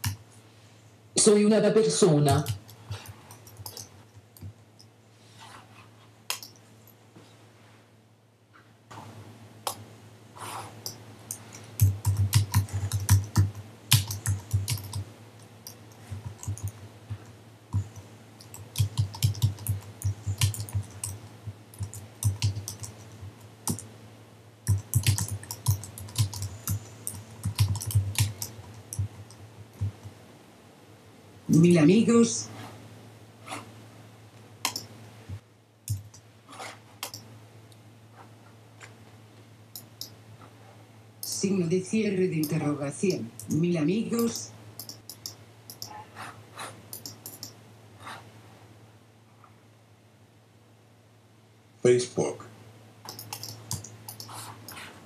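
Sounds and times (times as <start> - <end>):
keyboard typing: 2.3 - 4.6, 6.3 - 6.6, 10.8 - 23.9, 24.7 - 30.1, 34.6 - 34.9, 35.9 - 37.3, 39.8 - 40.2, 43.4 - 46.0, 46.9 - 47.6, 53.1 - 54.9.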